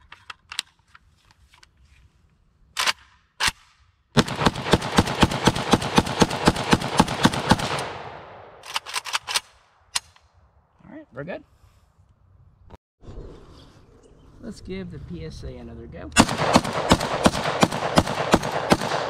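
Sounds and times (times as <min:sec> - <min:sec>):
rifle shots with echo: 0:04.2 - 0:09.9, 0:16.2 - 0:19.0.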